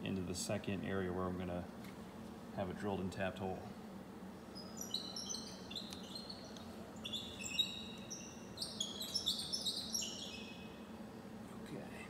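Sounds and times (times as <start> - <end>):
steady low hum: 0.0 - 12.0
small birds chirping: 3.5 - 12.0.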